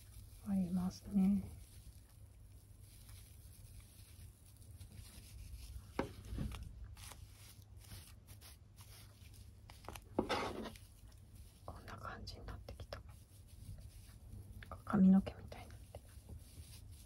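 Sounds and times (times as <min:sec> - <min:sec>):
yarn and crochet hook rustling: 0:00.0 - 0:17.0
soft knock: 0:05.9 - 0:06.6.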